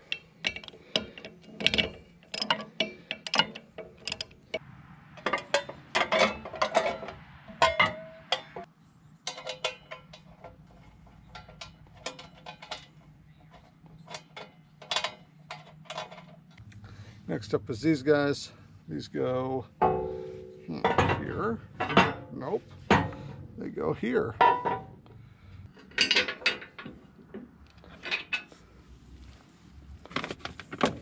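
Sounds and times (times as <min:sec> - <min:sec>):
metallic clicks and clanks of tools: 0:00.0 - 0:16.8, 0:19.8 - 0:23.5, 0:25.7 - 0:28.6
ringing metal clank: 0:05.2 - 0:10.5, 0:19.8 - 0:23.5.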